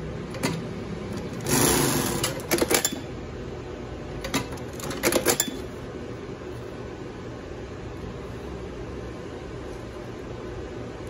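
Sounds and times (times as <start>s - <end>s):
sewing machine mechanism clacks: 1.2s - 3.0s, 4.3s - 5.6s
sewing machine running: 1.3s - 3.0s.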